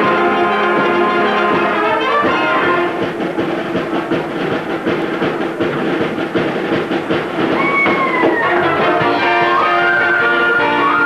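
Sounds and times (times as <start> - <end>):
held brass chord: 0.0 - 3.2
orchestra playing: 0.0 - 3.7, 7.6 - 11.0.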